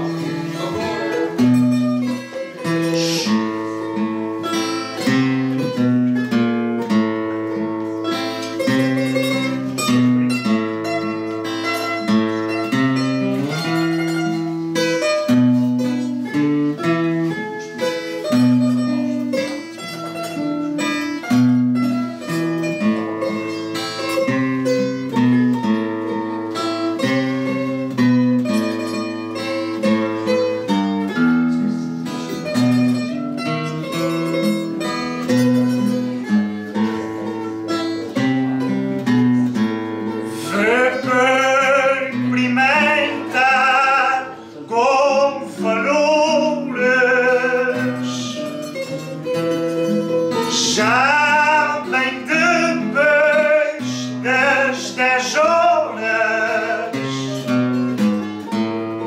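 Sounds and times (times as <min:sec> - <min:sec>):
plucked string tune: 0:00.0 - 0:59.0
person singing with vibrato: 0:02.6 - 0:04.0, 0:40.2 - 0:57.7.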